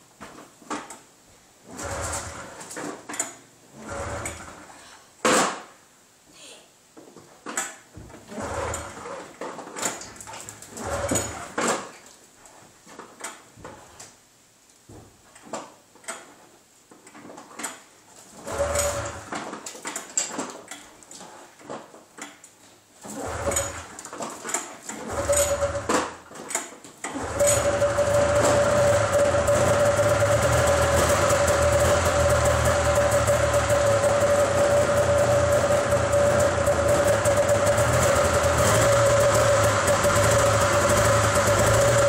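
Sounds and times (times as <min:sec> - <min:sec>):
snowmobile engine cranking: 0:01.7 - 0:02.7, 0:08.3 - 0:09.1, 0:10.7 - 0:11.6, 0:23.1 - 0:23.9, 0:25.0 - 0:26.0, 0:27.1 - 0:42.0.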